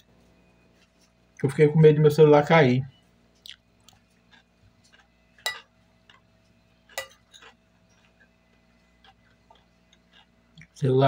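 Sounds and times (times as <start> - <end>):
chewing: 3.4 - 10.8.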